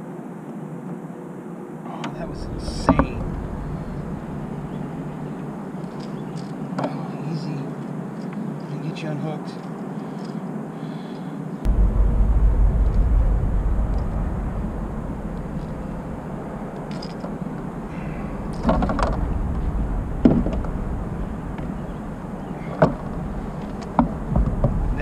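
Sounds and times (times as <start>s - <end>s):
wind rumble on microphone: 2.1s - 6.5s, 11.7s - 25.0s.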